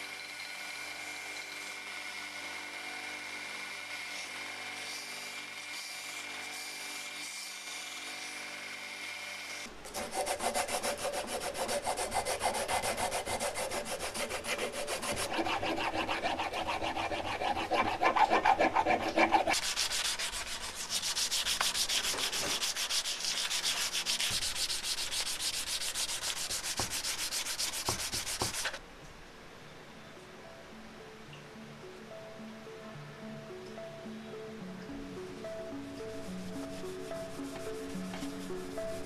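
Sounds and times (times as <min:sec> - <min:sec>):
sandpaper rubbing on handle: 0:09.9 - 0:28.8.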